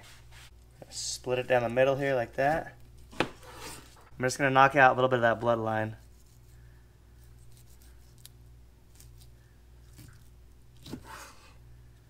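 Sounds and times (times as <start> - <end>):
low steady hum: 0.0 - 12.0
knife slicing fish: 10.8 - 11.4.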